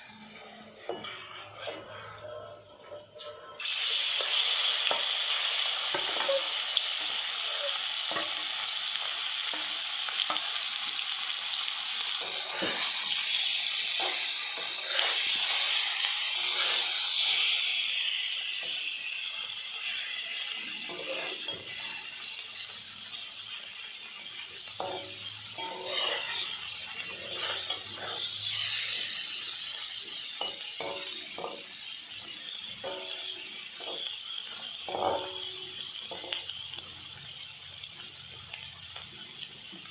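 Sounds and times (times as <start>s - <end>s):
spatula scraping a wok: 0.0s - 36.6s
fish sizzling in hot oil: 3.6s - 39.9s.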